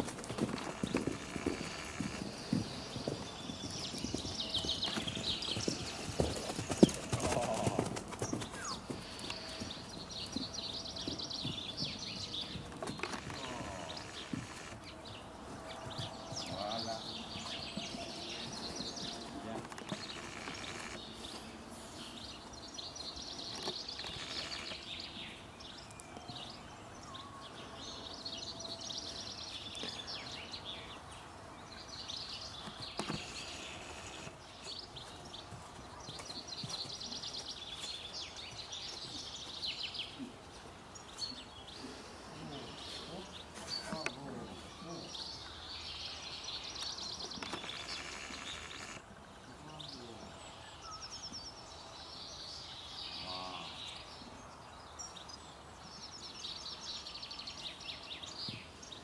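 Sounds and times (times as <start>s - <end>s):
horse hoofbeats on sand: 0.0s - 14.6s, 15.5s - 20.2s, 34.7s - 39.8s.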